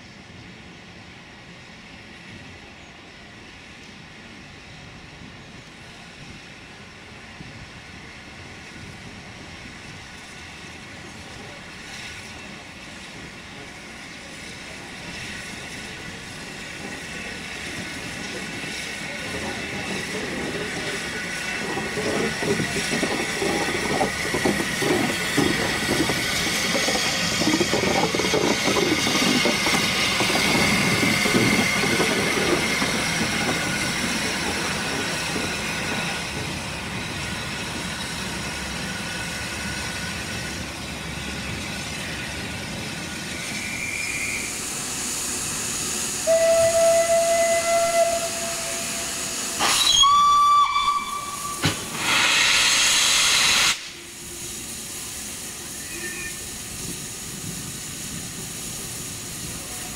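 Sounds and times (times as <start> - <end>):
steam locomotives hissing: 0.0 - 59.9
steam whistle blasts: 46.2 - 54.1, 55.8 - 56.5
loud burst of escaping steam: 51.2 - 59.9.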